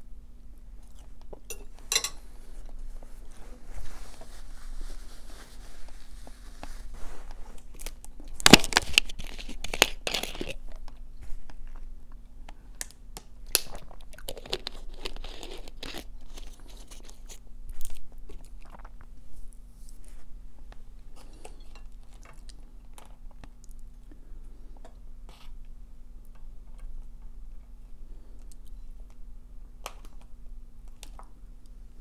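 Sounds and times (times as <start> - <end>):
plastic bottle crinkling: 7.6 - 10.9
mouth chewing sounds: 13.5 - 19.2.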